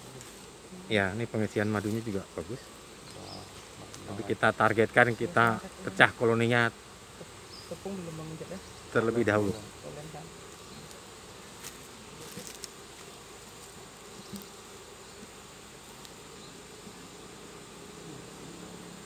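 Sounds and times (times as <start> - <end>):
bee colony buzzing: 0.0 - 19.0
light knocks on hive box: 16.8 - 17.0.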